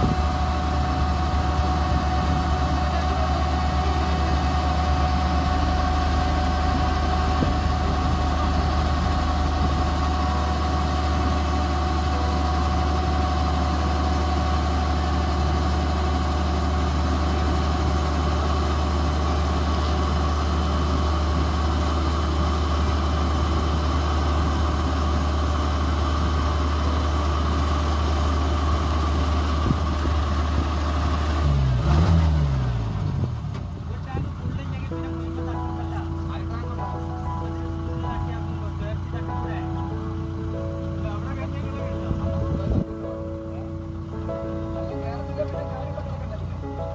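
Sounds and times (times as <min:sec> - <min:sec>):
grain auger unloading: 0:00.0 - 0:32.3
combine harvester diesel engine: 0:00.0 - 0:46.9.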